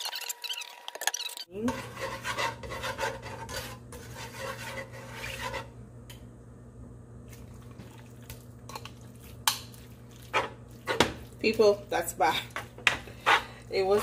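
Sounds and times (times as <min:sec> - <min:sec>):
utensil scraping in pot: 0:01.6 - 0:05.8, 0:10.1 - 0:14.0.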